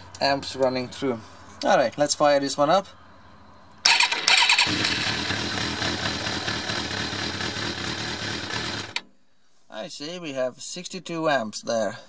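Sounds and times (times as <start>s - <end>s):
motorcycle starter cranking: 3.8s - 9.1s
motorcycle engine idling: 3.9s - 9.0s.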